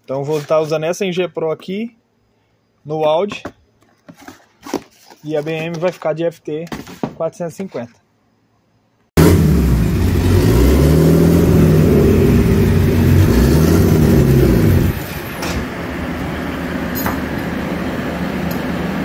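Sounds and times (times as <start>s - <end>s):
car engine revving: 9.2s - 15.2s.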